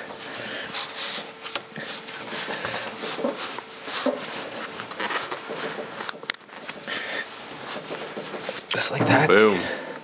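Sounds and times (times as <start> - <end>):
gloved hands rubbing and scraping: 0.7 - 8.6.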